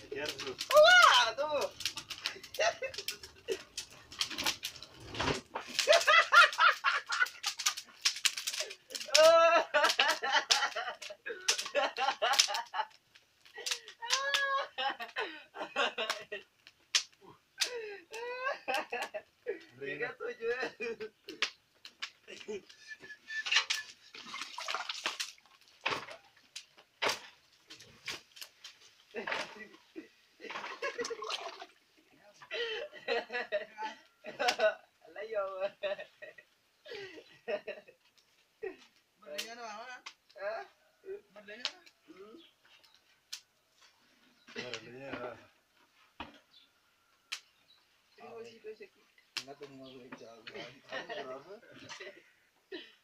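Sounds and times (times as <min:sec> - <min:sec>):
sharp snaps of burning wood: 0:00.0 - 0:15.2, 0:16.0 - 0:19.3, 0:21.0 - 0:22.8, 0:24.9 - 0:29.7, 0:38.0 - 0:40.4, 0:41.6 - 0:42.0, 0:42.7 - 0:43.6, 0:47.2 - 0:47.7, 0:49.2 - 0:49.8
wood fire crackling and popping: 0:00.0 - 0:31.8, 0:36.0 - 0:40.4, 0:41.4 - 0:46.6, 0:47.2 - 0:47.9, 0:49.1 - 0:50.6.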